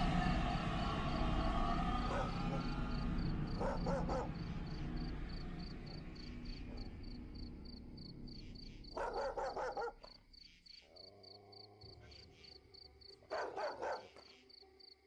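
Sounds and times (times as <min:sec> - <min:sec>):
crickets chirping: 0:00.0 - 0:15.0
dog barking: 0:02.0 - 0:04.8, 0:08.8 - 0:10.2, 0:13.2 - 0:14.4.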